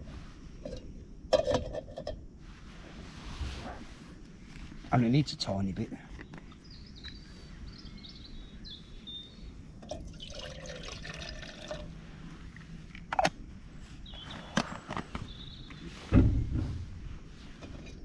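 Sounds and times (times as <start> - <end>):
water trickling into pot: 9.8 - 11.9.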